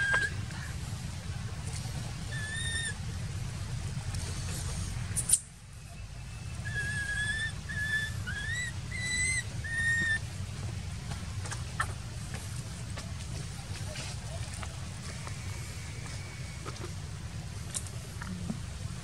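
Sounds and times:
baby monkey high whistle-like cries: 0.0s - 0.4s, 2.3s - 3.0s, 6.3s - 10.2s
steady low rumble: 0.0s - 19.0s.

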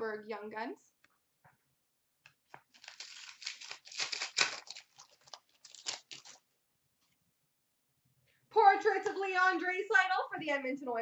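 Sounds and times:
foil wrapper tearing and crinkling: 2.6s - 6.5s.

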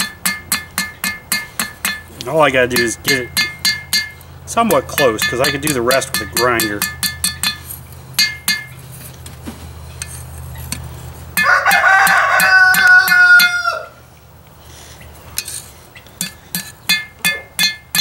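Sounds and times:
hammer blows on anvil: 0.0s - 8.8s, 11.4s - 13.7s, 16.2s - 18.0s
rooster crowing: 11.4s - 14.1s.

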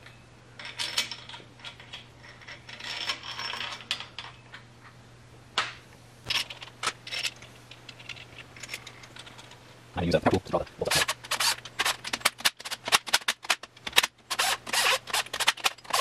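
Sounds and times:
metal rattling scrape: 0.6s - 4.4s, 10.9s - 16.0s
metal parts clinking: 0.6s - 4.6s, 6.3s - 9.6s, 10.9s - 16.0s.

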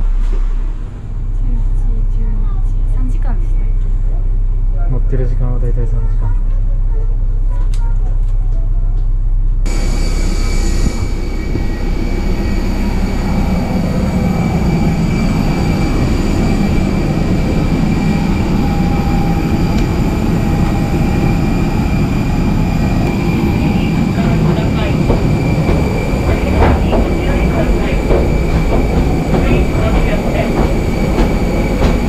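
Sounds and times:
low vehicle rumble: 0.0s - 32.0s
jet airliner rushing and whining: 9.7s - 32.0s.

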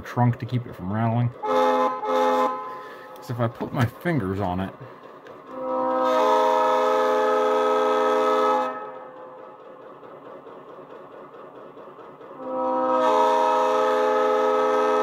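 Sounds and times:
diesel air horn chord: 1.4s - 3.2s, 5.5s - 9.1s, 12.4s - 15.0s.

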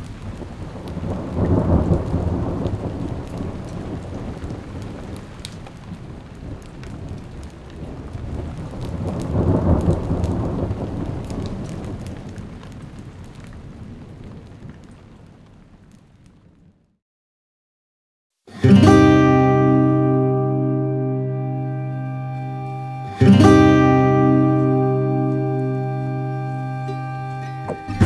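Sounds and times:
thunder rolling: 0.0s - 14.6s
rain falling: 0.0s - 16.9s, 18.6s - 28.0s.

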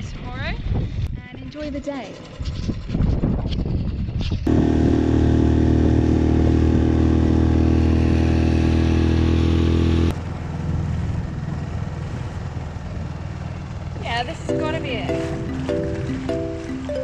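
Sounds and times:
water and wind noise: 0.0s - 17.0s
outboard motor running: 1.2s - 17.0s.

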